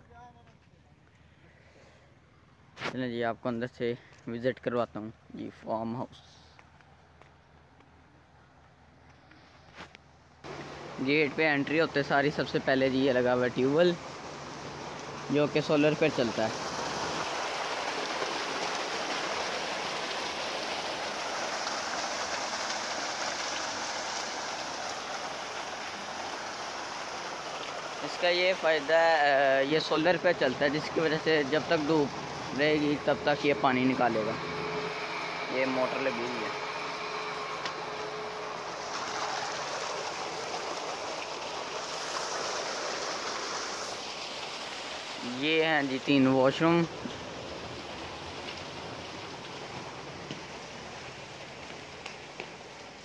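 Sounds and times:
water gushing into tank: 10.5 - 52.0.

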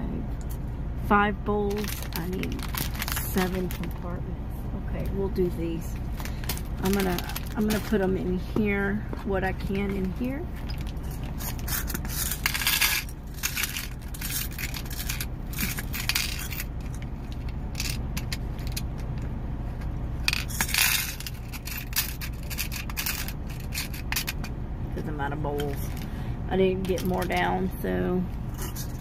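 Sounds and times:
steady low rumble: 0.0 - 29.0
metal beads clattering into plastic: 6.1 - 8.1, 9.8 - 19.0, 20.2 - 24.5.

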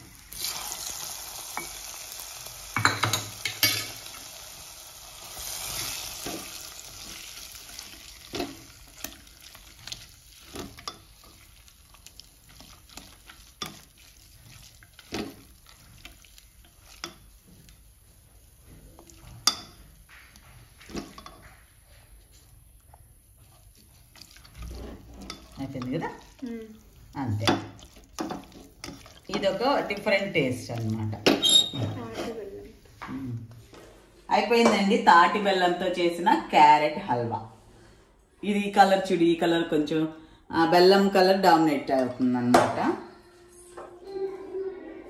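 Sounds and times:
hot ghee sizzling: 0.0 - 31.8
spatula scraping metal pot: 23.9 - 26.3, 27.4 - 32.5.

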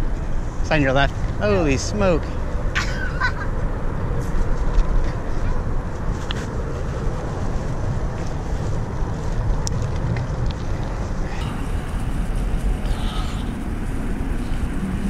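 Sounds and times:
wind rumbling on microphone: 0.0 - 15.0
bicycle tyre noise on trail: 3.6 - 15.0.

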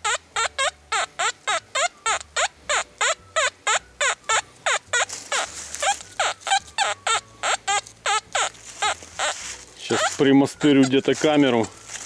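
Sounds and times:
metal detector beeps: 3.0 - 12.0.

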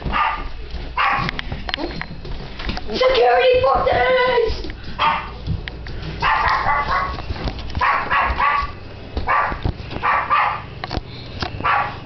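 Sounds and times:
dog barking: 0.1 - 1.4, 5.0 - 5.4, 6.2 - 7.2, 7.8 - 10.7, 11.6 - 12.0.

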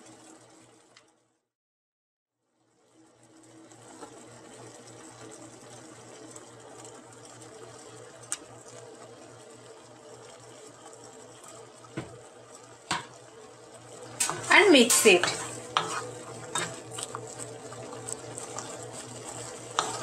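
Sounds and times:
mechanical hum with throb: 3.1 - 20.0
metal spoon stirring in a pan: 14.0 - 20.0.

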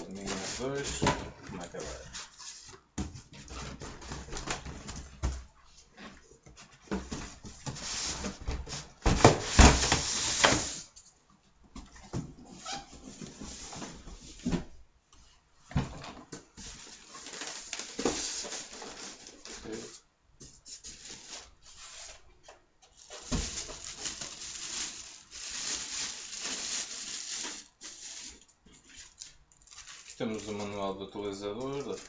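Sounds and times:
plastic bag rustling: 0.0 - 2.6, 16.6 - 20.0, 20.6 - 22.3, 22.9 - 32.0.

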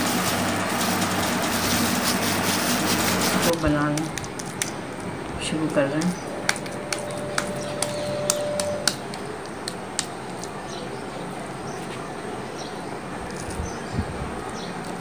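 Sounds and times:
hands patting meat: 2.8 - 4.8, 6.0 - 10.6
brief steady tone: 6.6 - 8.9.

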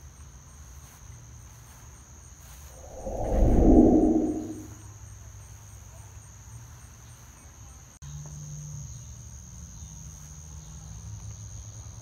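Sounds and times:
faint low hum: 2.8 - 4.7
low rumble: 2.8 - 4.8.

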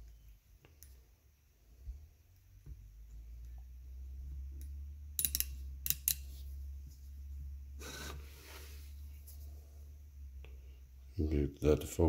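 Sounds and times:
micrometer ratchet clicking: 5.2 - 6.2
metal scraping rustle: 7.8 - 9.6.

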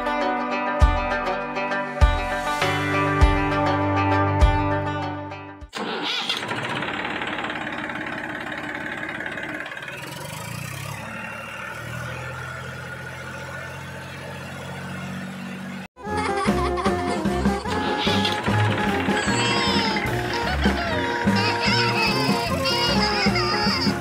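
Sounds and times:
small motor running: 17.6 - 23.9.

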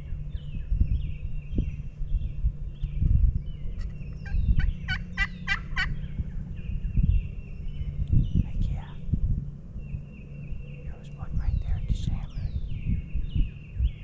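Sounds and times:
low rumble: 0.0 - 14.0
small birds chirping: 0.0 - 14.0
turkey gobbling: 4.9 - 6.0.

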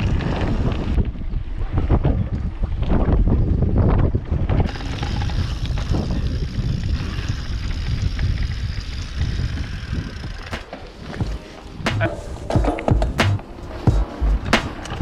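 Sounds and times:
bike rolling on dirt trail: 0.0 - 15.0
wind buffeting microphone: 0.0 - 15.0.

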